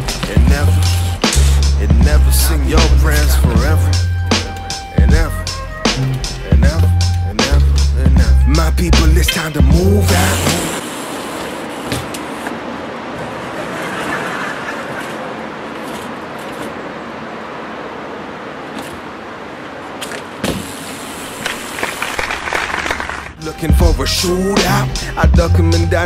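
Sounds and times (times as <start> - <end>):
bike wheels rushing on concrete: 10.0 - 12.6, 13.2 - 16.8, 20.0 - 23.4
bike knocking against ramp: 20.0 - 20.7.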